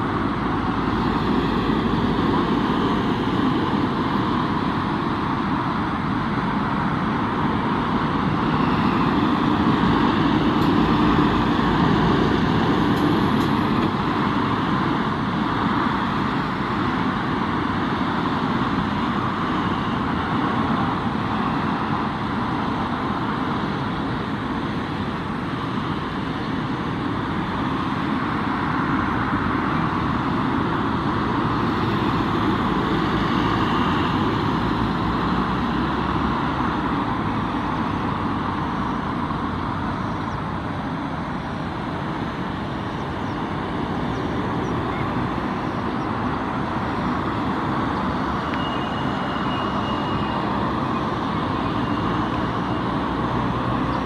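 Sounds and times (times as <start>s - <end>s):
turboprop engines running: 0.0s - 54.0s.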